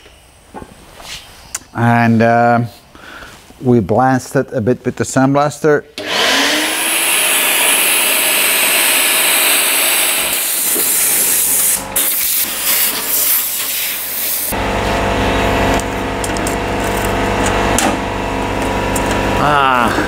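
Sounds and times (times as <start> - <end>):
steady motor hum: 6.0 - 12.0, 14.5 - 20.0
sandblaster hissing: 6.3 - 14.6.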